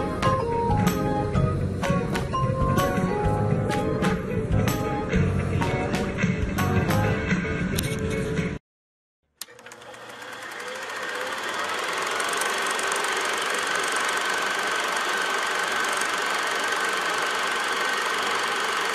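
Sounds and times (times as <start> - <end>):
engine-like running noise: 10.2 - 18.9.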